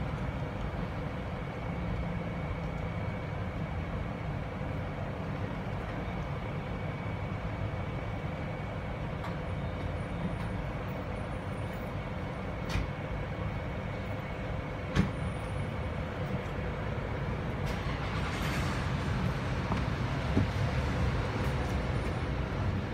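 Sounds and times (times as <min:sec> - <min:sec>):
faint steady whine: 0:00.0 - 0:18.0.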